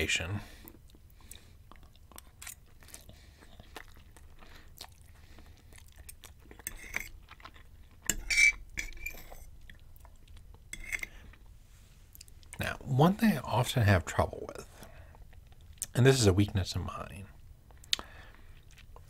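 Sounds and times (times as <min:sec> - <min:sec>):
man chewing: 0:00.5 - 0:12.6, 0:14.8 - 0:15.9, 0:17.6 - 0:19.0
fork scraping ceramic plate: 0:06.6 - 0:07.1, 0:08.1 - 0:09.5, 0:10.7 - 0:11.1.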